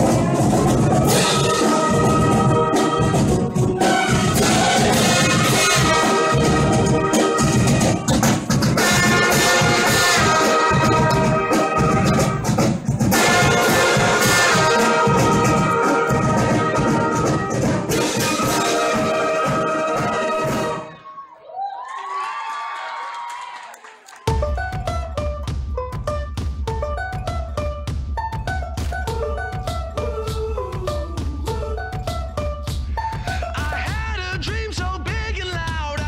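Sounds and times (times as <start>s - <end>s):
marching brass band playing: 0.0s - 21.0s.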